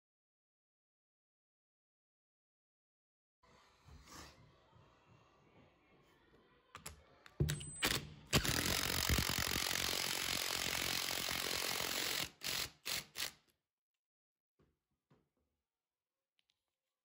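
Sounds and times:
cordless driver driving screw: 7.5s - 13.4s.

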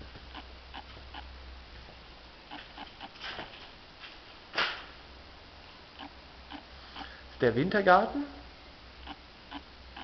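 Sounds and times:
faint scattered ticks: 2.5s - 3.4s, 5.9s - 7.2s, 9.0s - 10.0s.

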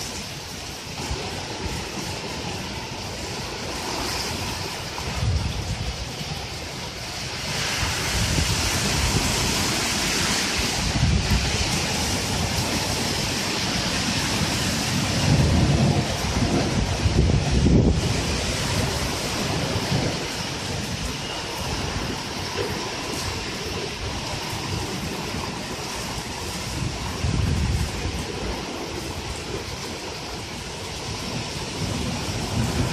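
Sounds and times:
heavy rain pouring: 0.0s - 32.9s
wind buffeting microphone: 0.0s - 32.9s.

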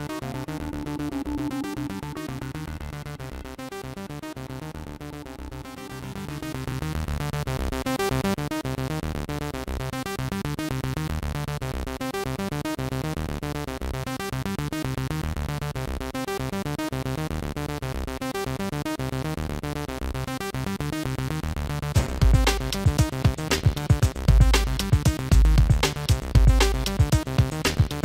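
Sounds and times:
music with steady beat: 21.9s - 28.0s.

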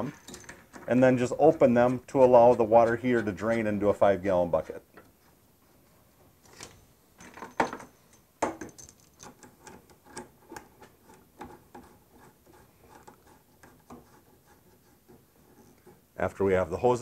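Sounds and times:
hose fittings clicking and knocking: 0.0s - 3.8s, 6.5s - 14.2s.

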